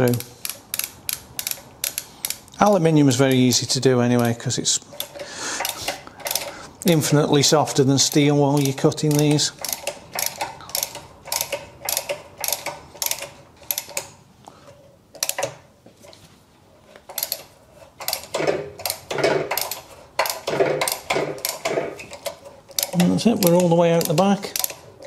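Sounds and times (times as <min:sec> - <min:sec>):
ratcheting tap handle clicking: 0:00.0 - 0:02.7, 0:04.2 - 0:06.5, 0:08.0 - 0:14.2, 0:17.1 - 0:24.8.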